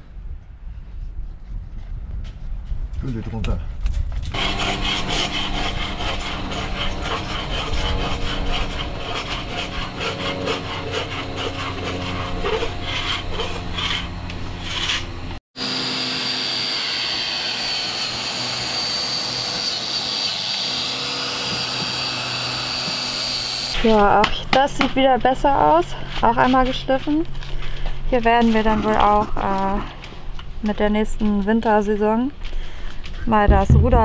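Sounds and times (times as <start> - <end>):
orbital sander whining: 4.3 - 25.6
scraping paint off a hull: 4.4 - 15.1.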